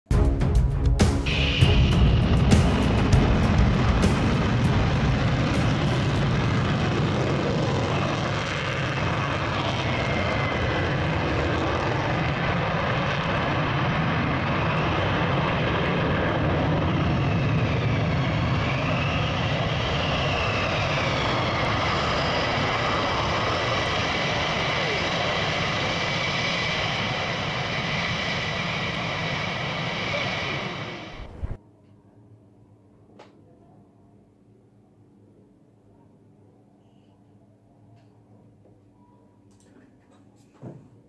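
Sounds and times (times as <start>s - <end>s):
aircraft engine drone: 0.2s - 31.6s
faint high whine: 1.3s - 39.8s.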